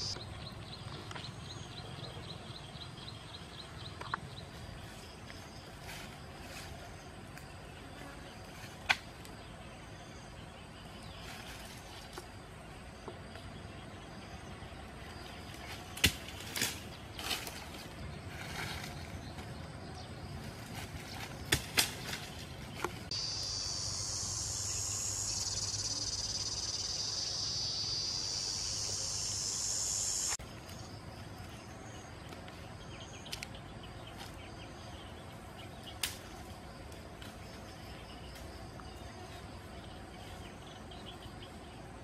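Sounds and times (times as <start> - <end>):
high-pitched insect buzz: 23.1 - 30.4.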